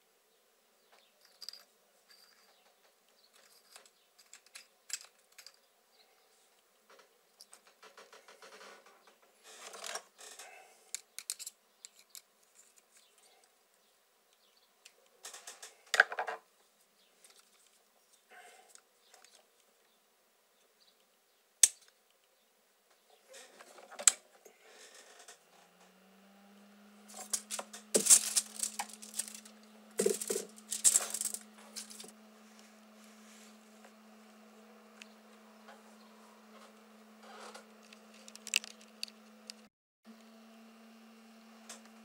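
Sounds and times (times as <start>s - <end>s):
steady low hum: 24.5s - 39.7s
foil rustling and crinkling: 27.1s - 32.1s.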